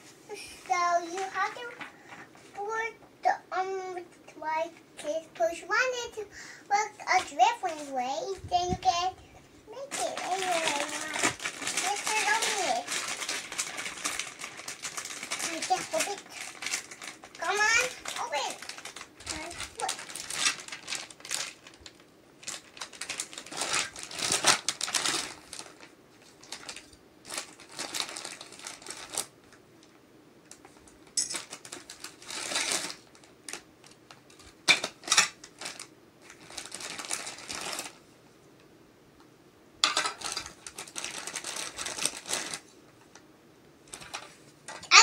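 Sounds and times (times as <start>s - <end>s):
plastic bag crinkling: 0.7s - 1.9s, 9.7s - 29.4s, 30.6s - 38.0s, 39.8s - 42.7s, 43.8s - 45.0s.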